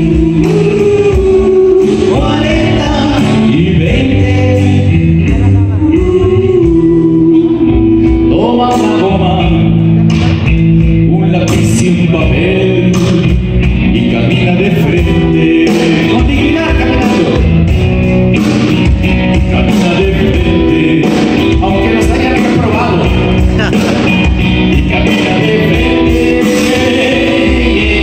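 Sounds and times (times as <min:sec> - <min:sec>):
person singing amplified: 0:00.0 - 0:10.2, 0:14.0 - 0:17.5, 0:19.4 - 0:24.2, 0:24.8 - 0:28.0
drum kit beat: 0:00.0 - 0:28.0
electric guitar: 0:00.0 - 0:28.0.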